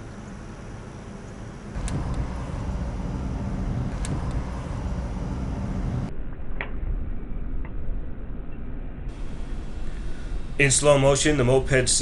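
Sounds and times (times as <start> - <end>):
car engine and road noise: 0.0 - 6.2, 9.1 - 10.7
sharp click: 3.9 - 4.5.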